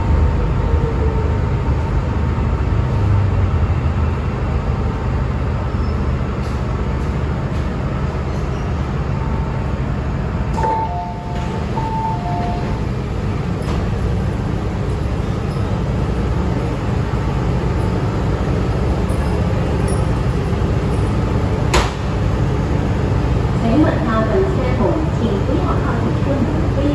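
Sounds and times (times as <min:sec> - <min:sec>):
train interior low rumble: 0:00.0 - 0:26.9
train doors opening: 0:05.6 - 0:23.0
two-note chime: 0:10.6 - 0:12.6.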